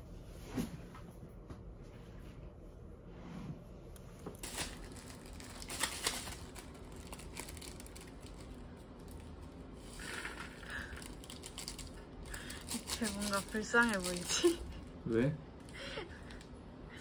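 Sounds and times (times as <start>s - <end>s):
packaging crinkling and rustling: 4.2s - 14.9s
sachet tearing open: 4.4s - 14.6s.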